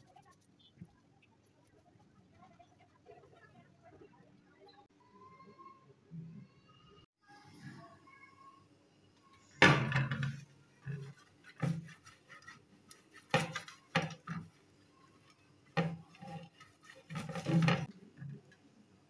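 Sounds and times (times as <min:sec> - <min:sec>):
brush scraping metal tray: 0:10.2 - 0:14.5, 0:15.7 - 0:18.3.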